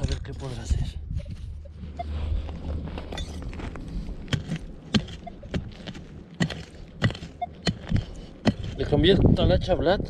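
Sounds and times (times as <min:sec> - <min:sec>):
hand pick striking stony dirt: 0:04.2 - 0:09.2.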